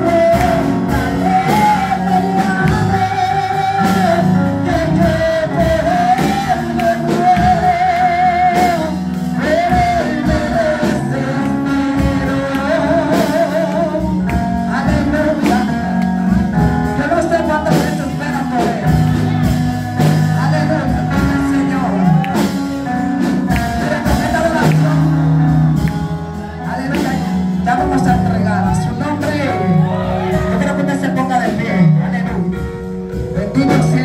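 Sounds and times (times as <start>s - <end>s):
woman singing worship song: 0.0s - 15.7s
percussion hits: 0.0s - 29.5s
live band with keyboard: 0.0s - 34.0s.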